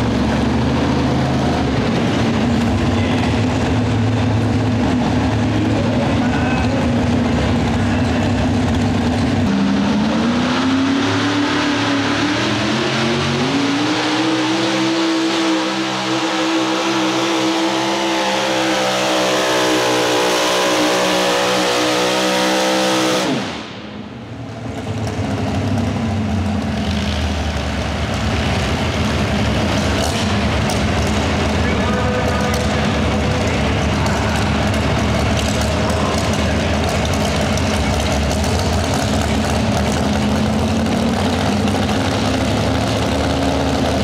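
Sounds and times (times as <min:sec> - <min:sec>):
truck engine at full throttle: 0:00.0 - 0:44.0.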